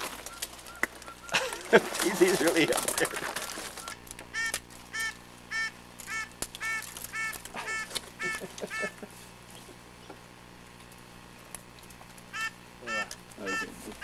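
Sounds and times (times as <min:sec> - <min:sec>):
waterfowl honking: 0:04.3 - 0:09.1, 0:12.3 - 0:14.0.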